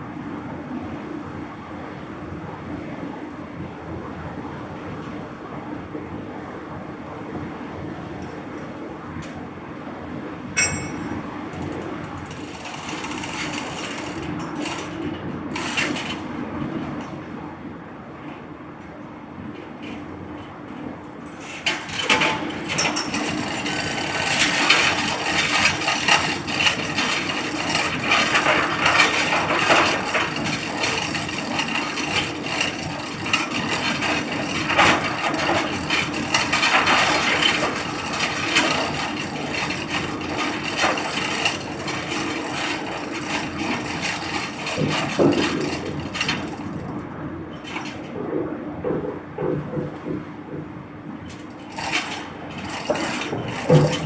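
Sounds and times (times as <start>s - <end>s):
low machinery hum: 0.0s - 54.0s
hand chain rattling through hoist: 12.2s - 16.3s, 21.4s - 48.1s, 51.2s - 54.0s.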